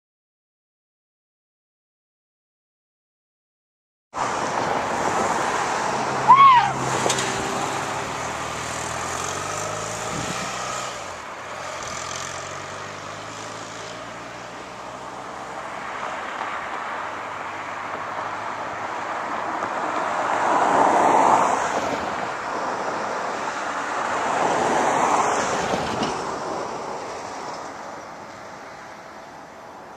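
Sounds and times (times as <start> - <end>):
distant vehicle engine: 4.2 - 15.9.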